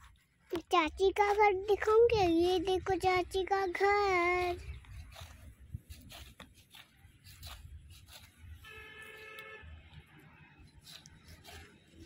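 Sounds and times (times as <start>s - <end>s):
vehicle horn honking: 8.6s - 9.8s.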